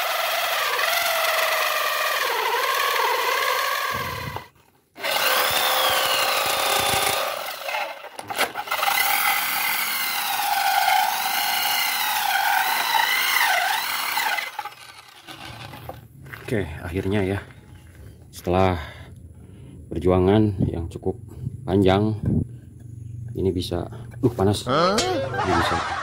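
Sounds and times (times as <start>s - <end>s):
electric drill motor whining: 0.0s - 16.0s
hole saw grinding into wood: 0.0s - 16.1s.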